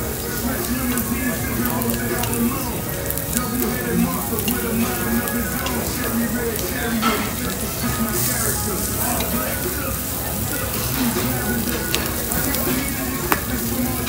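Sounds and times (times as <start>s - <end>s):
food sizzling on grill: 0.0s - 14.0s
metal tongs clicking: 1.6s - 8.3s, 10.6s - 14.0s.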